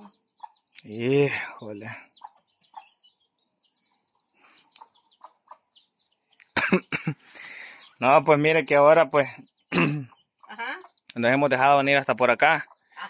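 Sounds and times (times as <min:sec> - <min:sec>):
small birds chirping: 0:00.0 - 0:13.0
person coughing: 0:06.6 - 0:07.3, 0:09.7 - 0:10.2.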